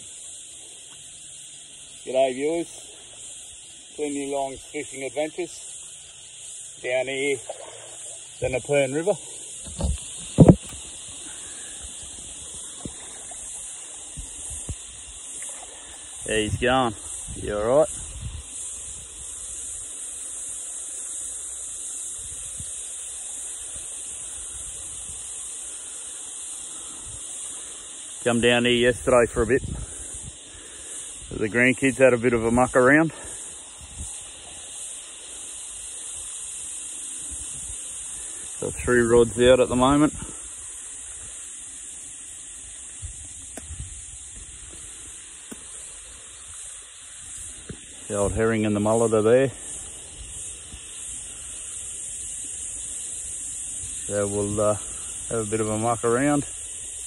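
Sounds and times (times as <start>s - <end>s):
cicadas droning: 0.0s - 57.0s
wind rumble on microphone: 9.7s - 10.8s, 16.2s - 19.4s, 28.9s - 30.4s, 43.0s - 44.9s.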